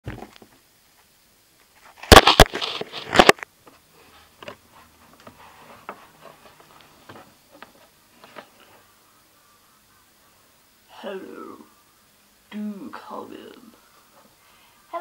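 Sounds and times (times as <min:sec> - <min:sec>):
faint taps and shuffling: 0:03.6 - 0:08.9.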